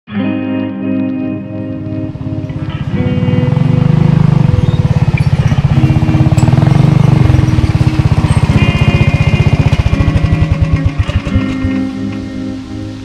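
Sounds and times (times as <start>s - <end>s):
background music: 0.1s - 13.0s
go-kart engine running: 2.1s - 12.2s.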